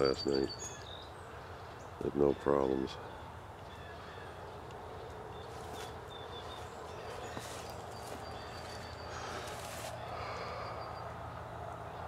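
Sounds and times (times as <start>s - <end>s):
bird chirps: 0.0s - 11.2s
rustles in dry leaves: 4.9s - 10.6s.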